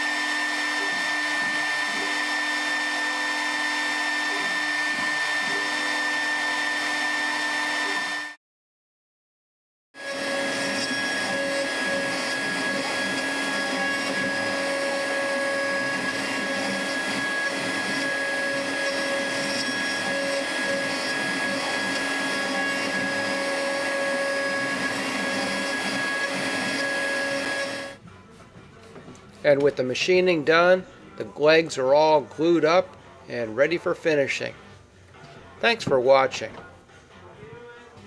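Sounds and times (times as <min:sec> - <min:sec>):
router spindle whining: 0:00.0 - 0:08.4, 0:10.0 - 0:28.0
dust collection suction: 0:10.0 - 0:28.0.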